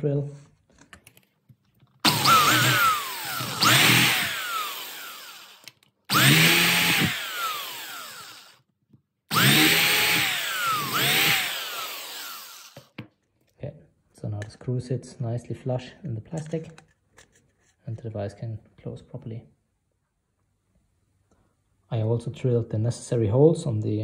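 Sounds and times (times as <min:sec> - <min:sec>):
electric drill boring plastic: 0:02.0 - 0:08.6, 0:09.3 - 0:12.9.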